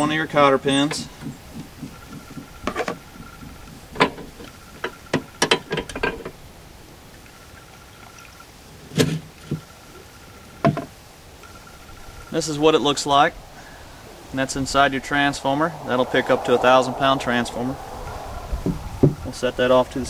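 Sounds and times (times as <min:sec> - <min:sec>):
sharp metal knocks: 0:00.8 - 0:06.4.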